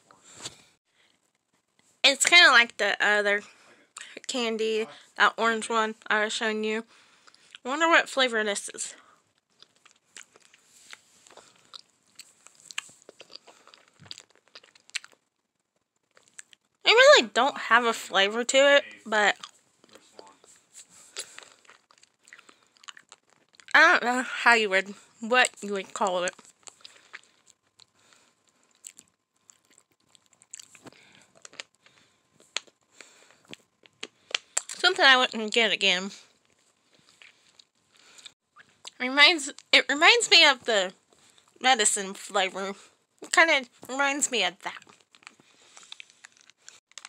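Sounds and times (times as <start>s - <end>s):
person chewing hard candy: 7.1s - 7.6s, 9.2s - 16.8s, 18.9s - 23.8s, 26.3s - 34.8s, 36.3s - 39.0s, 44.7s - 47.0s
wet mouth clicks: 33.5s - 34.8s.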